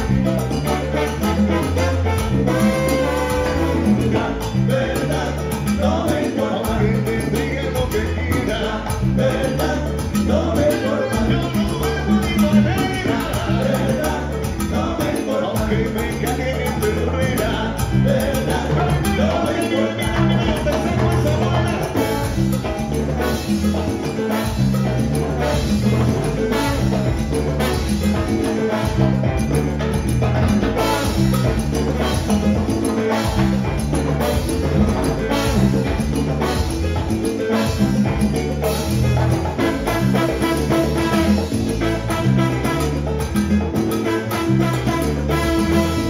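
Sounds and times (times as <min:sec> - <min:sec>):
conga drums: 0:00.0 - 0:46.0
live salsa band playing: 0:00.0 - 0:46.0
trombones playing: 0:00.6 - 0:04.4, 0:25.4 - 0:29.5, 0:30.8 - 0:32.4, 0:34.2 - 0:37.0, 0:39.6 - 0:43.1, 0:44.1 - 0:46.0.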